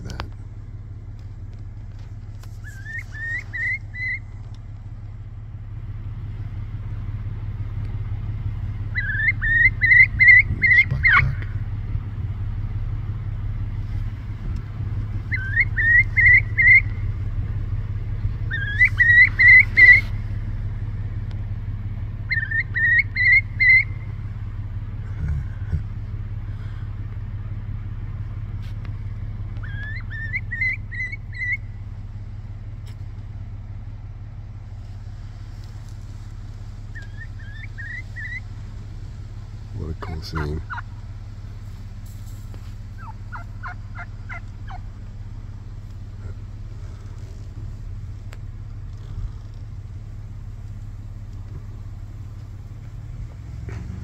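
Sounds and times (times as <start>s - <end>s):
car engine humming: 0.0s - 54.0s
bird calling rising notes: 2.5s - 4.5s, 8.8s - 11.6s, 15.1s - 17.2s, 18.0s - 20.6s, 22.1s - 24.3s, 29.5s - 31.8s, 36.8s - 38.8s.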